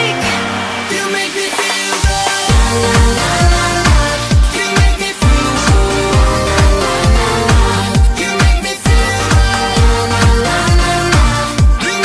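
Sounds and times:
electronic dance music: 0:00.0 - 0:12.0
kick drum: 0:02.0 - 0:11.8
sustained synth notes: 0:05.2 - 0:08.3.

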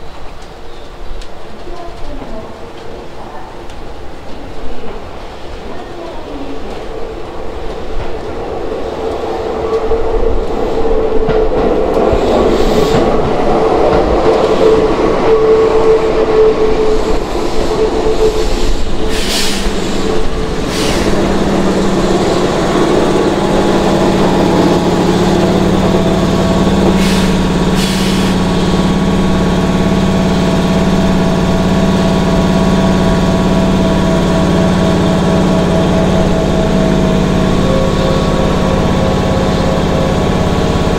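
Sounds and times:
electric train pulling in: 0:03.8 - 0:40.9
high whine: 0:09.4 - 0:40.9
short air hisses: 0:18.7 - 0:19.9, 0:20.7 - 0:21.2, 0:27.0 - 0:28.4.

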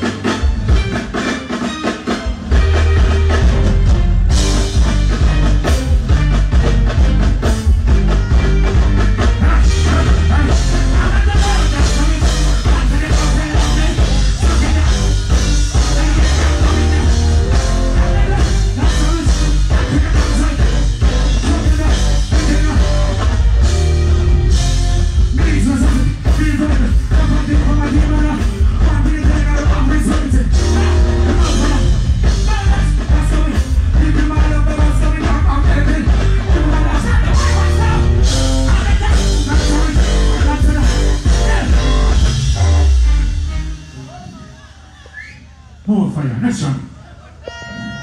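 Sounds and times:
live reggae band playing: 0:00.0 - 0:48.0
man singing into microphone: 0:09.4 - 0:22.9, 0:25.3 - 0:41.8.

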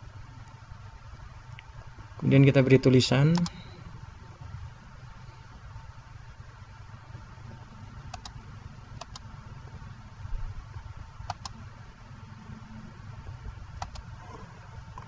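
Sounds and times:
low steady hum: 0:00.0 - 0:15.0
computer mouse double-clicking: 0:13.8 - 0:14.0.

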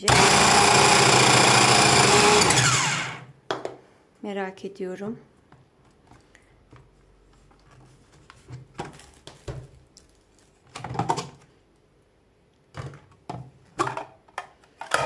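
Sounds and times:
plastic parts clicking and knocking: 0:08.5 - 0:11.4, 0:12.7 - 0:15.0.

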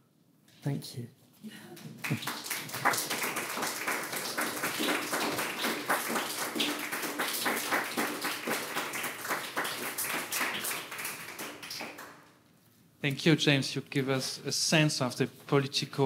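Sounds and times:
audience applauding: 0:01.8 - 0:12.2.

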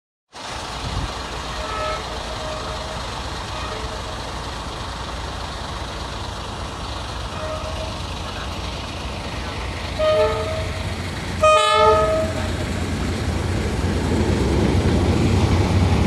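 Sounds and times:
road traffic rumble: 0:00.3 - 0:16.0
wind rumble: 0:10.7 - 0:16.0.

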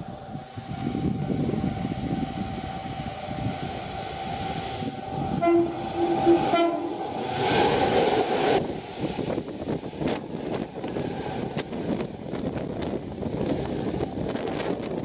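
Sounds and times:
electric train whine and rumble: 0:00.0 - 0:15.0
train horn short toots: 0:05.3 - 0:07.0.

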